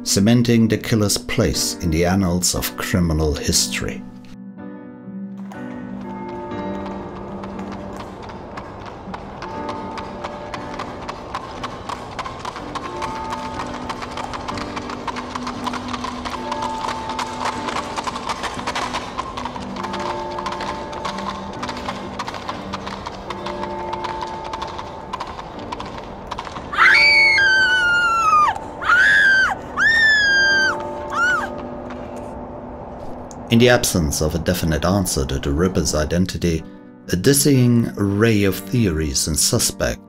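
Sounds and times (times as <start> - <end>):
slow background music: 0.0 - 40.0
horse hooves clip-clopping: 5.4 - 32.0
horse whinnying: 26.7 - 31.6.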